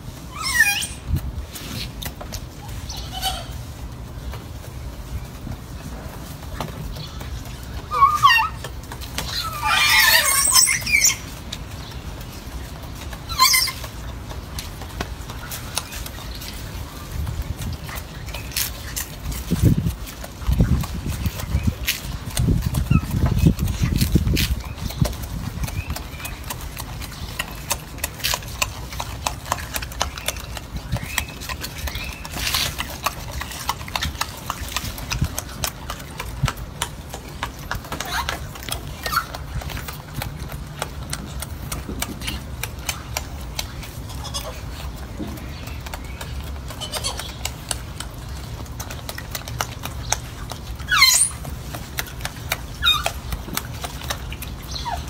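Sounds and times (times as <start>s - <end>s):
monkey chewing fruit: 0.0s - 55.0s
monkey high squeaks: 0.3s - 1.1s, 2.6s - 3.6s, 7.9s - 11.4s, 13.3s - 13.9s, 22.6s - 25.0s, 38.0s - 39.4s, 44.1s - 44.6s, 46.7s - 47.4s, 50.8s - 51.5s, 52.8s - 53.3s.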